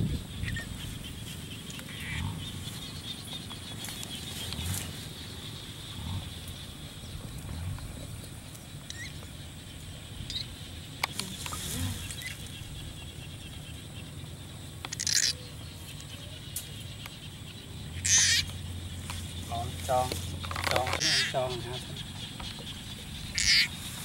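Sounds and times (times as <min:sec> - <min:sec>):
low rumbles: 0:00.0 - 0:14.8
outdoor background hiss: 0:00.0 - 0:24.0
scraping rustle: 0:11.1 - 0:12.3.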